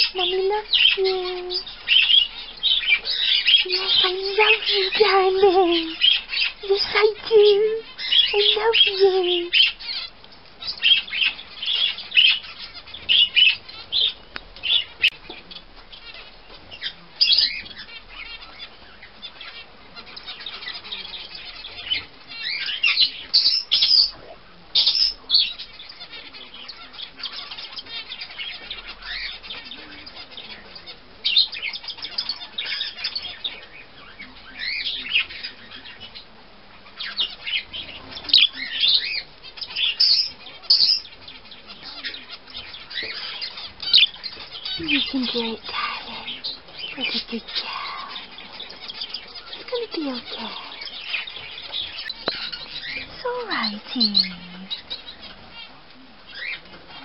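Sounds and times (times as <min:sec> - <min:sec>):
budgerigar chirping: 0:00.0 - 0:24.2, 0:24.8 - 0:57.0.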